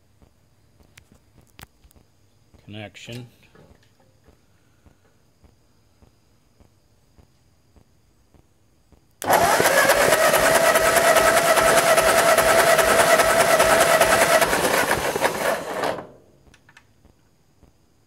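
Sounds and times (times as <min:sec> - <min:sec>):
electric starter cranking engine: 0:09.2 - 0:16.3.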